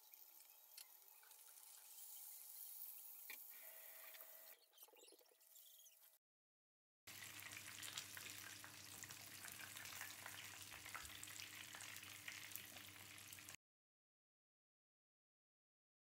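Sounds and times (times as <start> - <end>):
hot oil sizzling and crackling: 0.0 - 3.5, 7.1 - 13.6.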